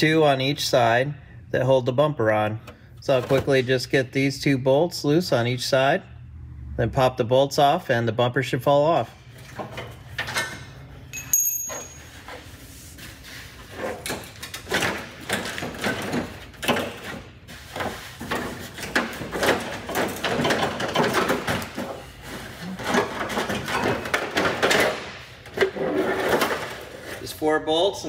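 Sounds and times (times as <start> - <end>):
tools and bolts clattering: 9.4 - 12.5, 13.8 - 17.3, 18.2 - 22.1, 22.8 - 27.0.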